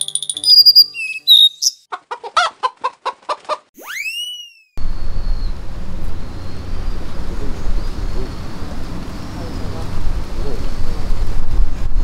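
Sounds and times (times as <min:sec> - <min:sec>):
upward swooping whistle: 0:00.0 - 0:01.8, 0:03.8 - 0:05.6
high chirping whistles: 0:00.0 - 0:01.9, 0:03.8 - 0:05.6
hen-like clucks: 0:01.8 - 0:03.7
outdoor background noise: 0:04.8 - 0:12.0.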